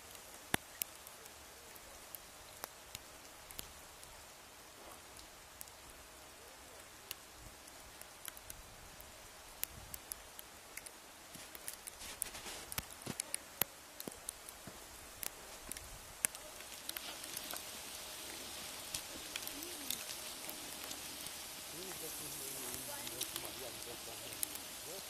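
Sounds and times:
faint steady hiss: 0.0 - 25.0
drops pattering on a surface: 11.3 - 13.4.

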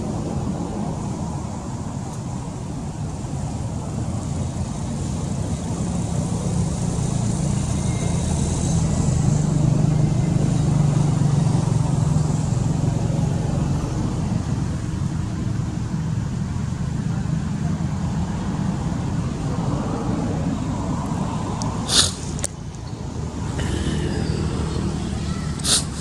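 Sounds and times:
vehicle engine droning past: 4.8 - 14.7, 23.1 - 25.6.

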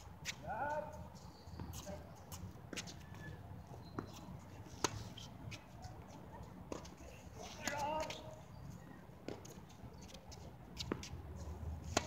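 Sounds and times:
tennis ball bouncing on hard court: 10.8 - 11.2.

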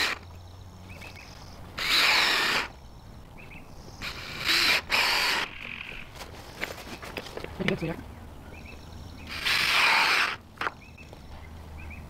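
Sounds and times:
cordless drill bursts: 1.8 - 2.7, 4.0 - 5.5, 9.3 - 10.4.

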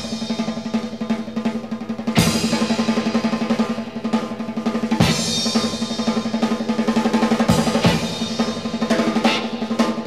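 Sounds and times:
drum kit playing: 0.0 - 10.0
cymbal crash: 2.1 - 10.0.

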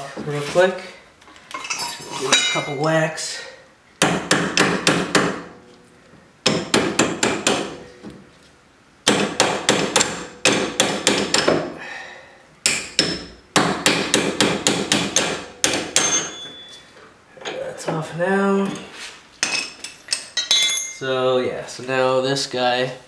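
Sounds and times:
hammer striking steel: 12.7 - 16.7.

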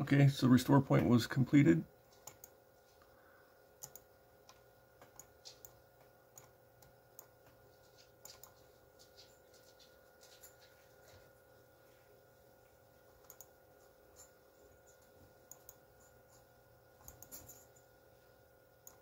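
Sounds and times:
faint electrical hum: 0.0 - 19.0
computer mouse clicks: 2.2 - 2.6, 3.8 - 7.6, 8.2 - 8.6, 13.2 - 13.5, 15.4 - 15.8, 17.0 - 17.5.

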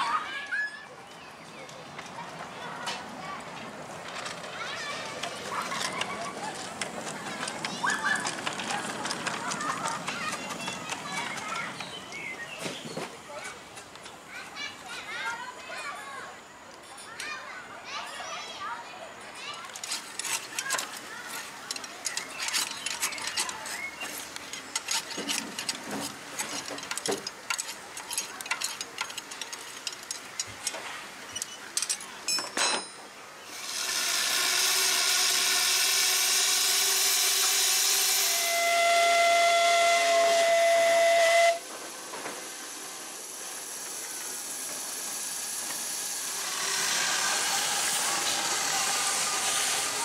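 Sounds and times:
irregular clicks and knocks: 19.6 - 33.1
steam hissing: 33.4 - 50.0
steam locomotive whistle: 33.6 - 41.7.

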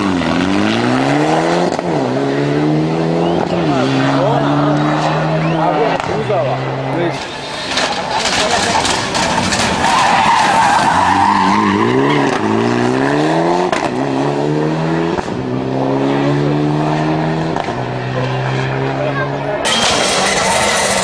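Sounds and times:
rally car engine accelerating: 0.0 - 21.0
tyres squealing: 19.6 - 21.0.

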